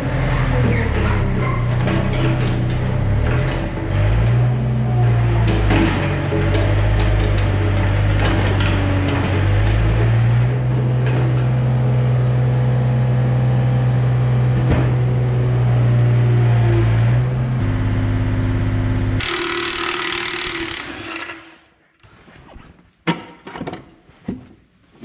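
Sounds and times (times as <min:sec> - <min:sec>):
excavator diesel engine running: 0:00.0 - 0:20.8
handheld power tool starting: 0:19.2 - 0:21.7.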